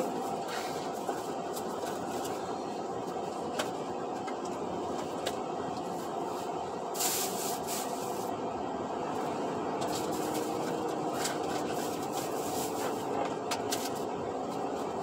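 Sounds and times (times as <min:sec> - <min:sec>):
engine and road noise in truck cab: 0:00.0 - 0:15.0
short burst of hiss: 0:07.0 - 0:08.0.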